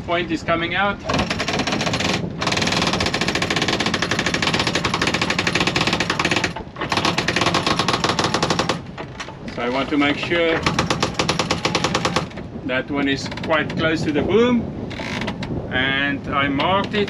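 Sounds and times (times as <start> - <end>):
rapid ratcheting clicks: 1.1 - 9.3, 10.6 - 12.4.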